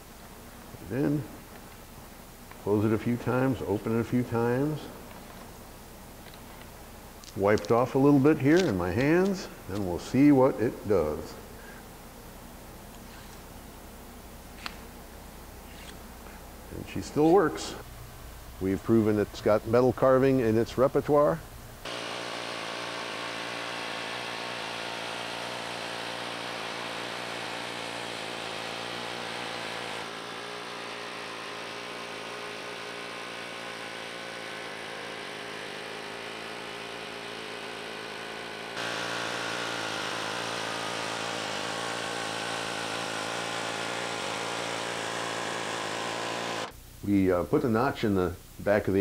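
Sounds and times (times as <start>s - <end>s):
pneumatic air hammer hammering metal: 21.9s - 30.2s.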